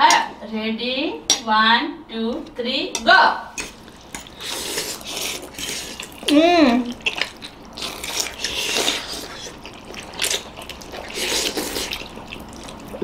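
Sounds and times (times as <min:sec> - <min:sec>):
people slurping noodles: 0:03.9 - 0:13.0.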